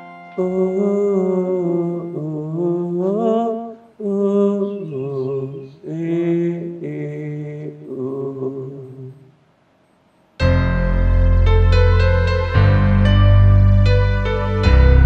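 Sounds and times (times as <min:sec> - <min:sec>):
person singing a lullaby: 0:00.0 - 0:09.3.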